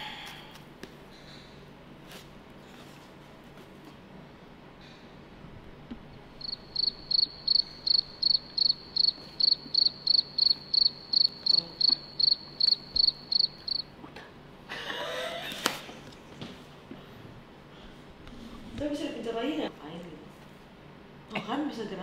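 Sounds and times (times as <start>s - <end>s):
cricket chirping: 6.3s - 14.0s.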